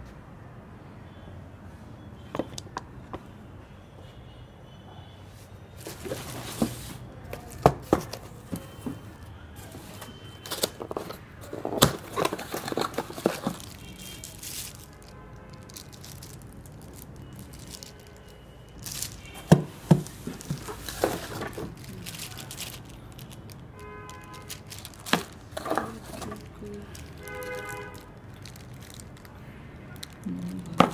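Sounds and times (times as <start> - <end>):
plastic bags crinkling: 5.8 - 30.9
cardboard scraping and knocking: 5.9 - 9.1, 19.4 - 21.8.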